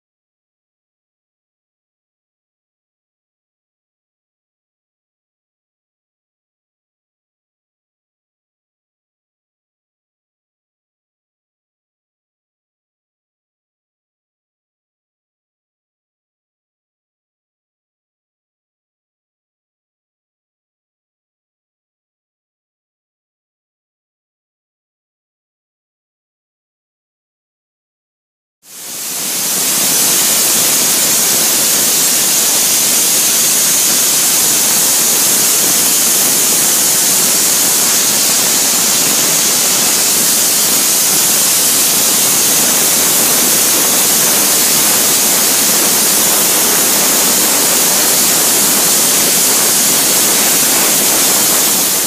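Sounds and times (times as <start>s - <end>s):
abrasive blasting hiss: 28.7s - 52.0s.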